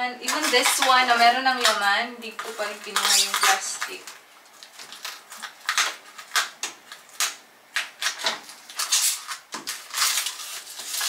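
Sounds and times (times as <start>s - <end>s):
plastic crinkling and rustling: 0.2s - 11.0s.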